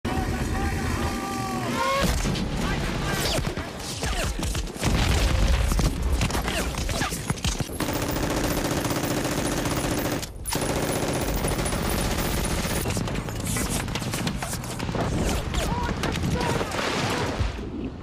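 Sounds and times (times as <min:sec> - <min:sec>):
machine-gun fire: 0:07.7 - 0:15.5.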